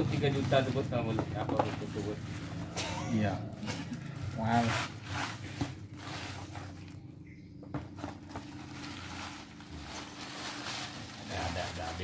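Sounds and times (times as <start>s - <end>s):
low steady hum: 0.0s - 12.0s
paper wrapping crinkling: 8.0s - 12.0s.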